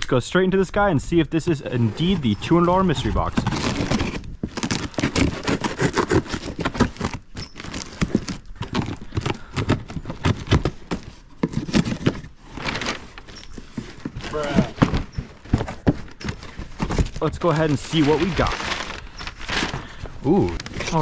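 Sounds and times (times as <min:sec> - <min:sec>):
cardboard flaps scraping and rustling: 0:01.7 - 0:21.0
tape ripping: 0:02.0 - 0:15.2, 0:16.1 - 0:21.0
knife slicing packing tape: 0:03.3 - 0:12.2.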